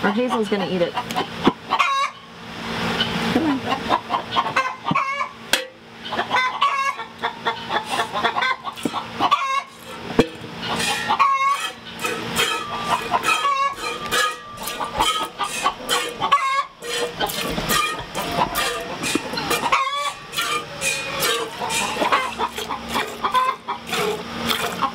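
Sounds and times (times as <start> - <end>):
chickens clucking: 0.0 - 2.3, 2.9 - 24.9
milk squirting into metal pail: 10.8 - 19.7, 20.3 - 24.9.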